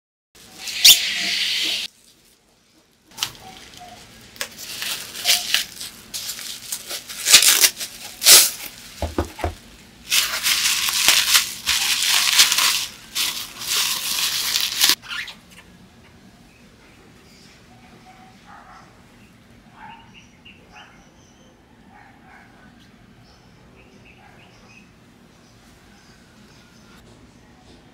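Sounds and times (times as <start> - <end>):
bubble wrap crinkling: 1.8 - 15.0.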